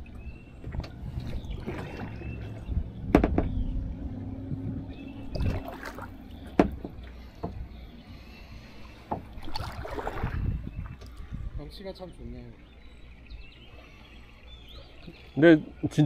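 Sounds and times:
paddle strokes splashing water: 1.1 - 2.7, 5.0 - 6.7, 9.1 - 10.6
sharp knocks: 3.1 - 3.6, 6.5 - 7.6.

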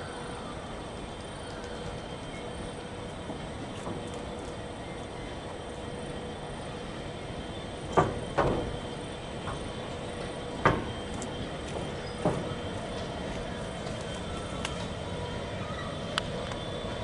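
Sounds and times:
diesel locomotive rumble: 0.0 - 17.0
train wheels clunking on points: 7.4 - 15.2.

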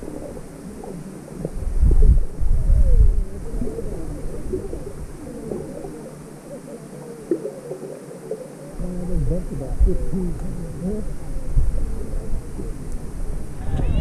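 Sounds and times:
wind buffeting microphone: 0.0 - 5.9, 8.8 - 14.0.

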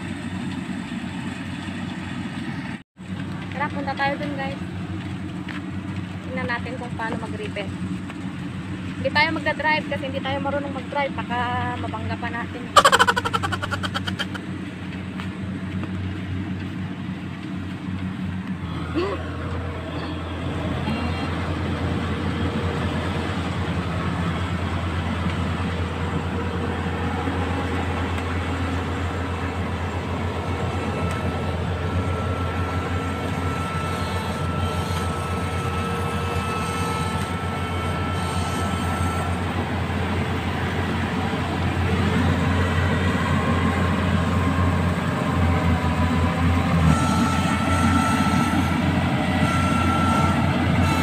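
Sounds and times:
diesel engines droning: 0.0 - 51.0
thin high whine: 30.7 - 39.6.

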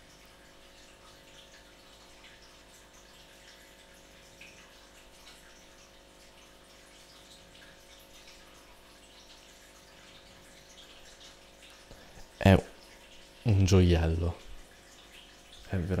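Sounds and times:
low hum and hiss: 0.0 - 16.0.

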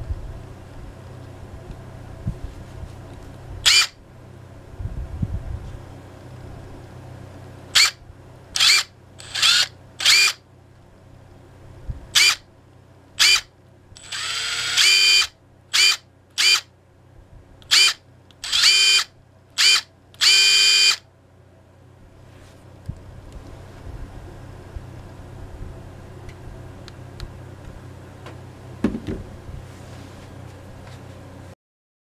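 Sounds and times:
impact driver motor whine: 3.6 - 4.0, 7.7 - 8.0, 8.6 - 10.4, 12.1 - 12.4, 13.2 - 16.7, 17.6 - 21.0.

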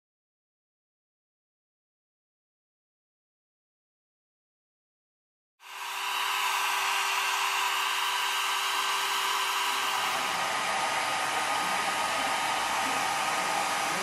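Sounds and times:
hair dryer blowing: 5.6 - 14.0.

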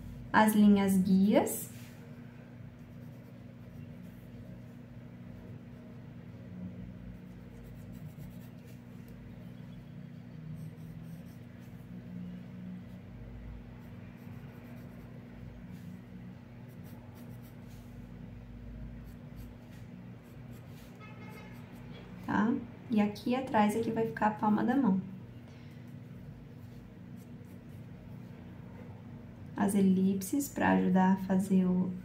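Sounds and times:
steady low hum: 0.0 - 32.0
pencil scratching on paper: 2.8 - 4.7, 7.2 - 9.0, 10.4 - 11.9, 13.8 - 16.0, 16.7 - 17.9, 19.0 - 21.6.

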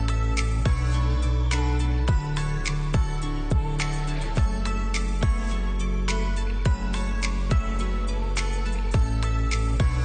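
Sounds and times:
beat-driven background music: 0.0 - 10.0.

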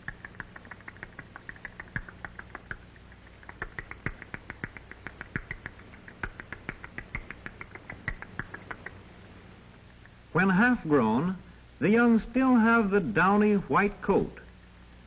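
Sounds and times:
owl chicks squeaking: 0.0 - 9.2.

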